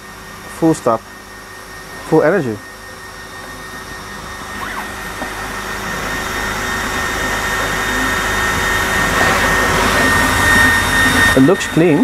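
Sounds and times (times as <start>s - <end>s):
thin high whine: 0.0s - 12.0s.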